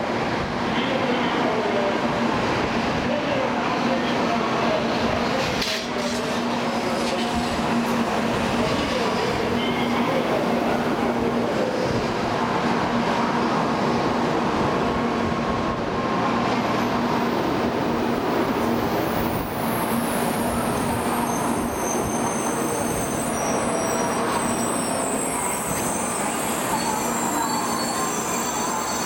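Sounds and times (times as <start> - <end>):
train rumbling into a station: 0.0 - 29.0
high-pitched brake squealing: 18.6 - 29.0.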